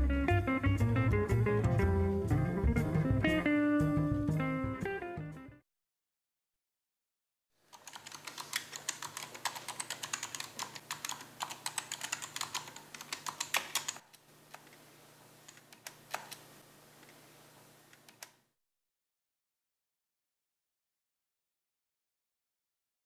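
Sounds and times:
typing on computer keyboard: 7.7 - 14.7, 15.5 - 16.4.

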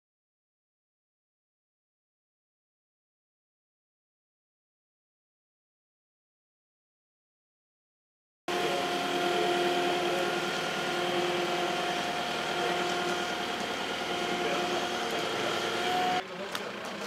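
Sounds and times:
telehandler engine and hydraulics whine: 8.5 - 17.0.

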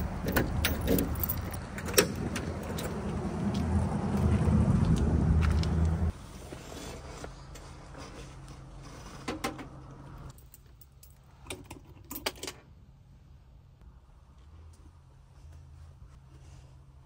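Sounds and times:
keys jangling: 0.2 - 2.0.

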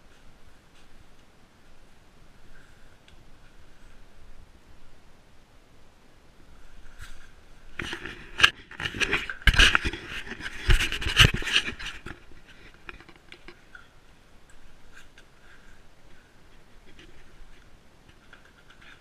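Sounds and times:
camera rubbing against jacket: 6.6 - 13.6, 14.7 - 19.0.

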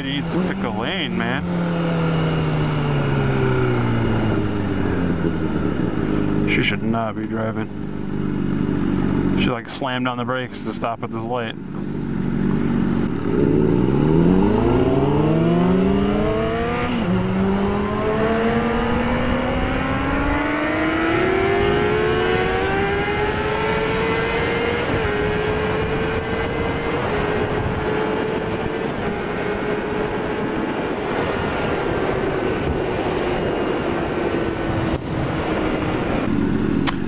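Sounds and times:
motorcycle engine accelerating: 0.0 - 37.0
wind noise: 12.0 - 37.0.

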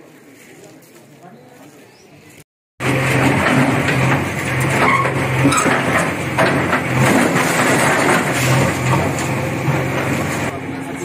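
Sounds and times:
diesel engine running: 2.8 - 11.0.

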